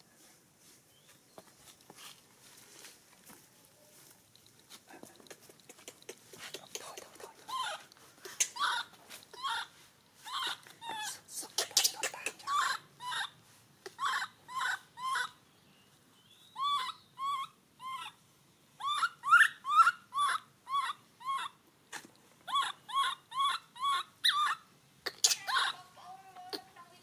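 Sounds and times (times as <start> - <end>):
baby monkey chirping cries: 6.8 - 15.4, 16.3 - 18.2, 18.8 - 21.6, 22.4 - 25.9.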